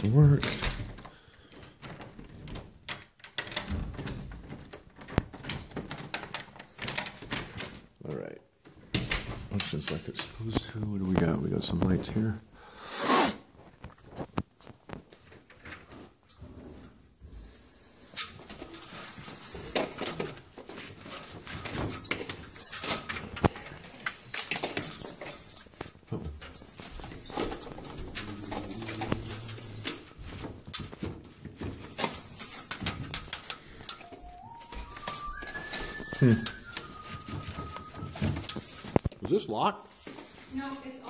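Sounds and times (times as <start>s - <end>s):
window blind slats rattling: 0.0s - 7.9s, 18.1s - 39.0s.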